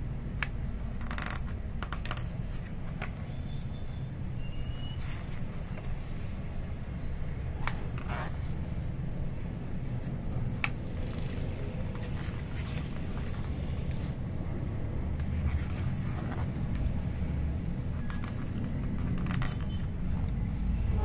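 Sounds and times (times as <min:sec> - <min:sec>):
book pages turning: 0:00.3 - 0:20.7
steady low rumble: 0:05.1 - 0:21.0.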